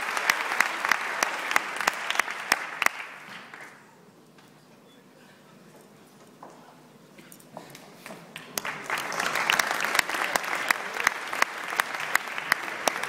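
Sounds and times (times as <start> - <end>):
audience applause: 0.0 - 3.8, 8.4 - 13.0
person clapping nearby: 0.0 - 3.8, 7.7 - 13.0.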